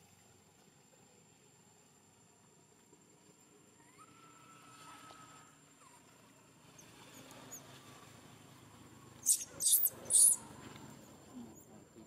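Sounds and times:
baby monkey squealing: 9.2 - 10.5.

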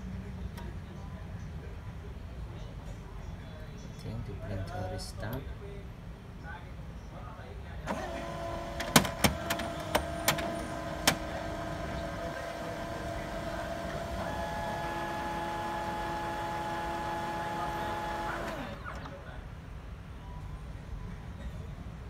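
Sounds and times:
sharp printer clicks: 7.9 - 19.2
printer motors whining: 7.9 - 19.4.

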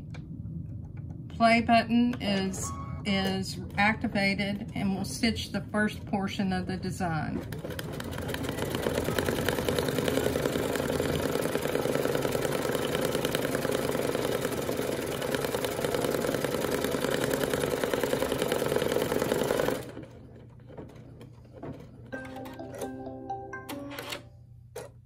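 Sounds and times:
embroidery machine stitching: 7.4 - 22.0.

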